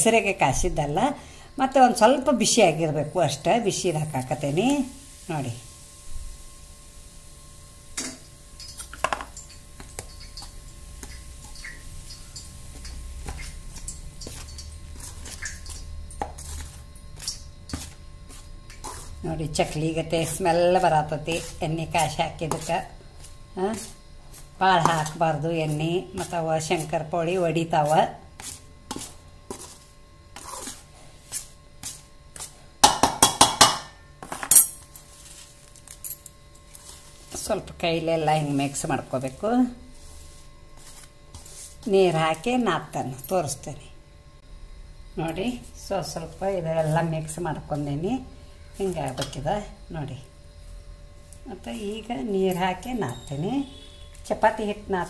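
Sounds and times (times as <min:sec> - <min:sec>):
spoon scraping metal bowl: 0:08.6 - 0:27.0, 0:27.8 - 0:32.0
metal spoon clinking in steel bowl: 0:34.4 - 0:34.8.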